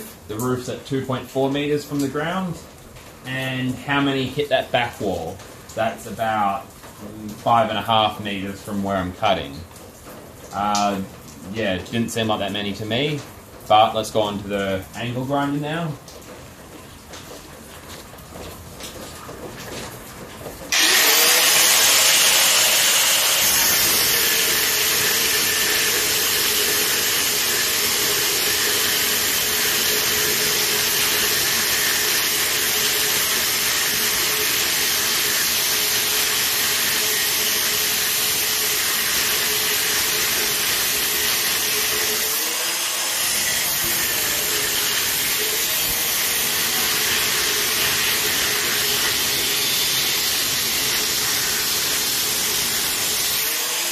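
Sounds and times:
angle grinder cutting metal: 20.7s - 53.9s.

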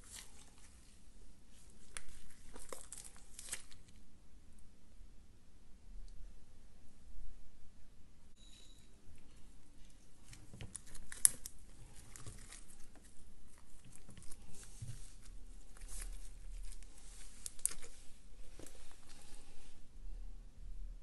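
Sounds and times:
slime squished by hand: 1.5s - 4.0s, 10.1s - 19.3s.

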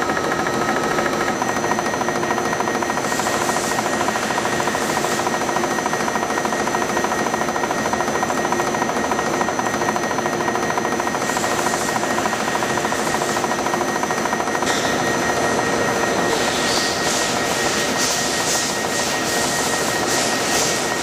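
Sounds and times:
milling cutter grinding steel: 14.6s - 21.0s.

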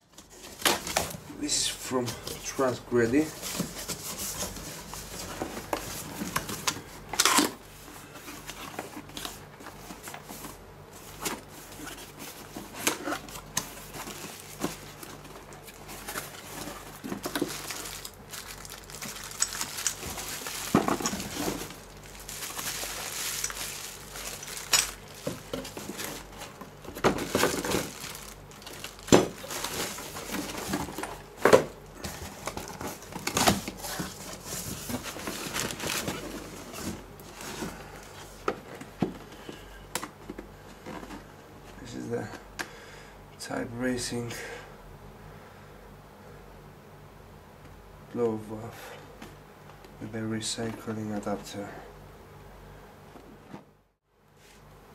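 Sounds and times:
cardboard boxes rustling and knocking: 3.1s - 41.4s
plastic packaging crinkling: 11.0s - 37.7s.

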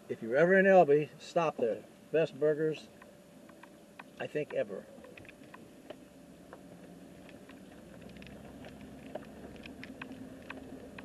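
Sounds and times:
vehicle driving hum: 0.0s - 11.0s
dash camera rattling: 2.9s - 11.0s.

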